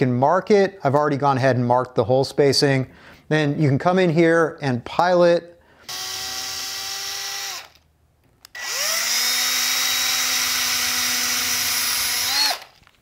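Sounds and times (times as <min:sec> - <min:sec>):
electric drill whining: 0:05.8 - 0:07.8, 0:08.4 - 0:12.9.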